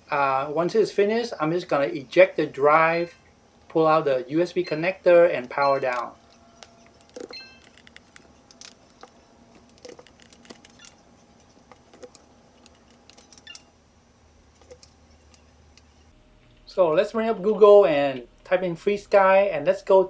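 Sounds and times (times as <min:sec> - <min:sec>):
faint electronic tone: 0:04.6 - 0:07.9.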